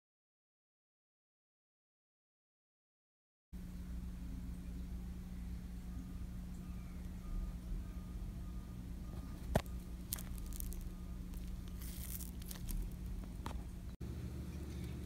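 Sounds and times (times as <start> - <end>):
steady low hum: 3.6 - 15.0
handling rustle: 9.2 - 13.8.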